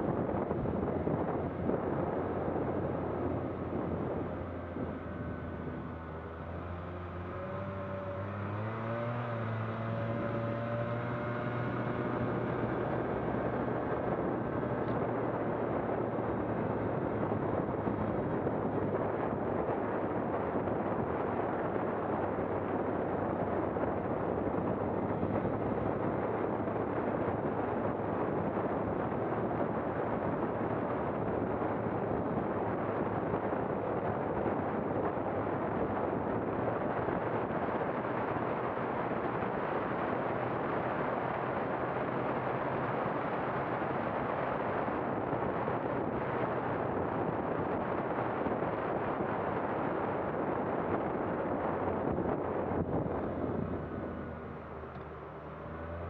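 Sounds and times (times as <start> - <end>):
vehicle rumbling: 0.0 - 56.0
wind buffeting microphone: 0.0 - 56.0.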